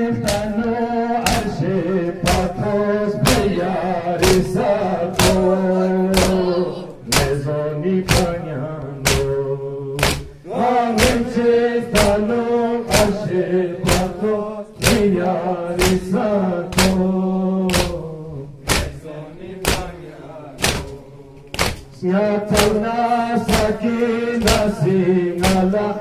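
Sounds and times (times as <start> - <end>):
men chanting a lament: 0.0 - 26.0
chest beating slaps: 0.2 - 3.6, 4.2 - 7.4, 8.1 - 8.4, 9.0 - 9.4, 10.0 - 10.4, 11.0 - 11.3, 11.9 - 12.3, 12.9 - 19.0, 19.6 - 20.0, 20.6 - 22.8, 23.5 - 25.9.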